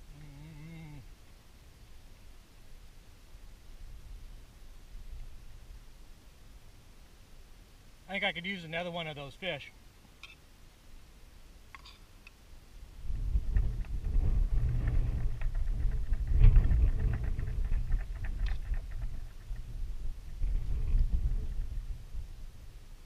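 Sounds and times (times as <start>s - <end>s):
wind gusting on microphone: 12.8s - 23.0s.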